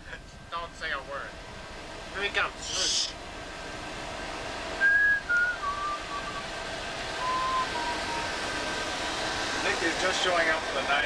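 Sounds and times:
faint steady hum: 0.0s - 11.0s
person whistling: 4.8s - 6.4s, 7.2s - 8.3s.

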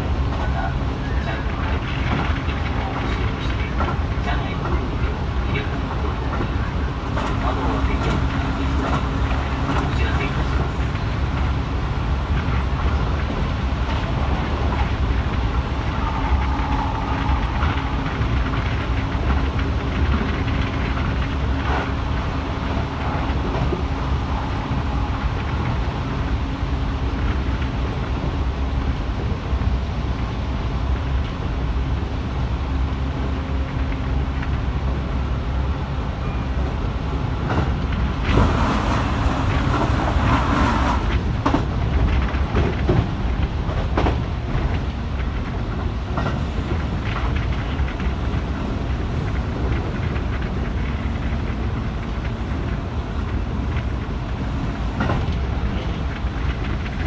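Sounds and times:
train wheels rumbling on rail: 0.0s - 57.0s
clacks over rail joints: 1.2s - 28.4s, 37.4s - 57.0s.

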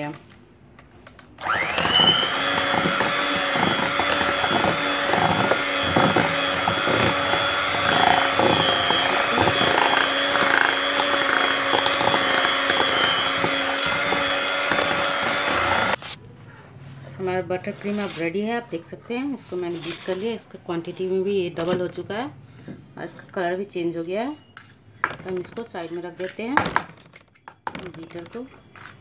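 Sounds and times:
electric hand mixer whining: 1.4s - 16.0s.

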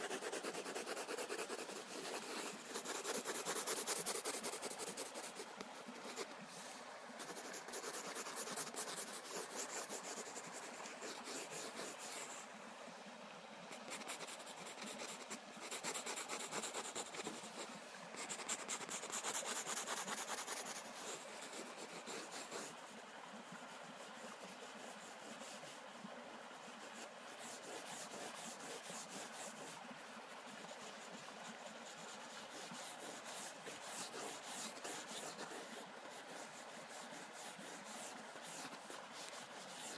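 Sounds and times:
pencil scratching on paper: 0.0s - 5.4s, 7.2s - 12.3s, 18.2s - 22.7s, 32.6s - 35.6s.

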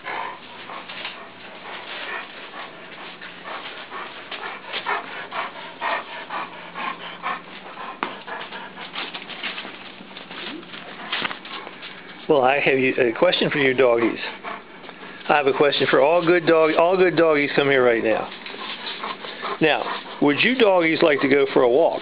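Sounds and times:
small dogs making excited noises: 0.0s - 12.2s, 18.3s - 22.0s.

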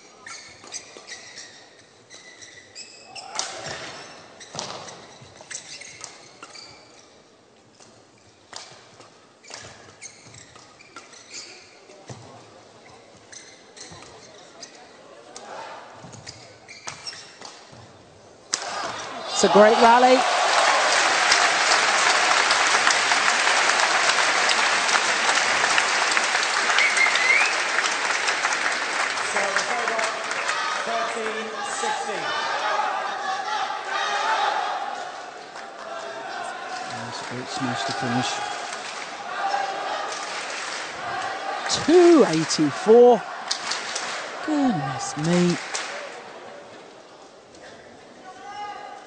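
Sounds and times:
shoes squeaking on court floor: 0.2s - 7.2s, 9.4s - 15.0s, 16.0s - 18.0s
crowd applauding: 19.4s - 32.2s, 40.1s - 46.0s.

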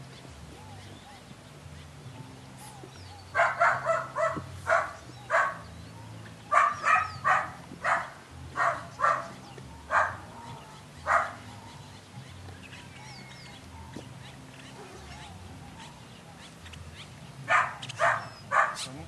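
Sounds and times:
puppy barking: 3.3s - 5.7s, 6.5s - 11.9s, 17.4s - 19.0s.

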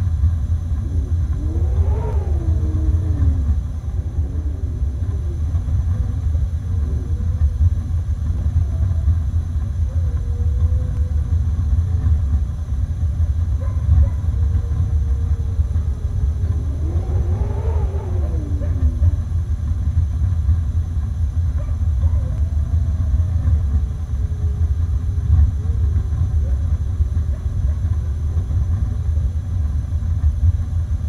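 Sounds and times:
distant wolf howls: 0.0s - 12.4s, 13.4s - 20.6s, 21.4s - 29.0s
snowstorm wind rumbling: 0.0s - 31.0s.

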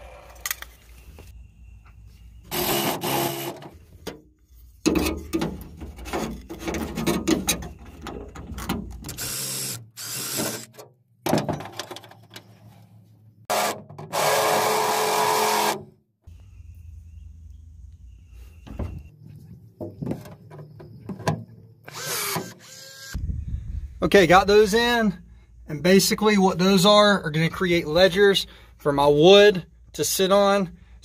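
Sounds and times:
power drill running: 2.5s - 3.6s, 9.1s - 10.7s, 13.5s - 15.8s, 21.9s - 23.2s.

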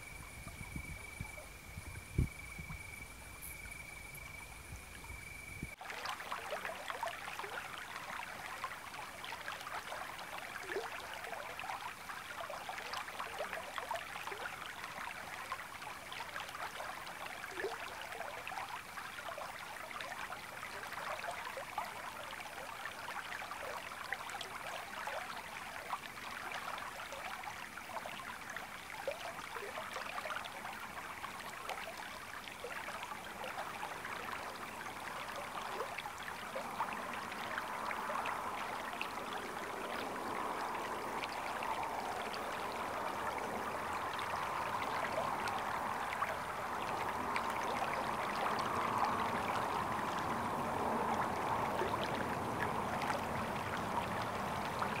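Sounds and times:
river water babbling over stones: 5.7s - 55.0s.

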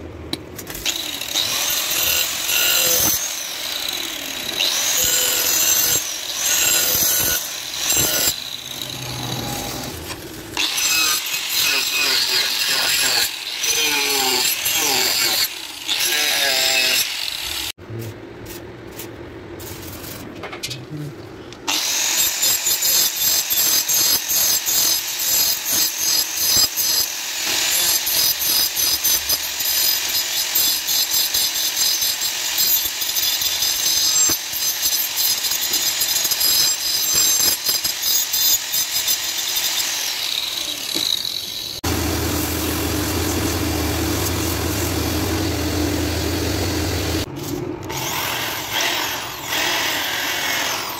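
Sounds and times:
angle grinder cutting wood: 0.7s - 17.8s, 21.7s - 50.9s
belt grinder motor hum: 0.8s - 17.7s, 38.1s - 50.9s.

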